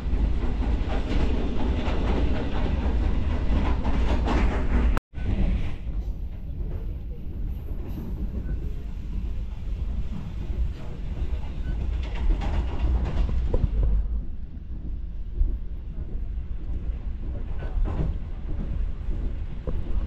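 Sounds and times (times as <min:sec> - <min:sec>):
train coach rumbling on rails: 0:00.0 - 0:20.0.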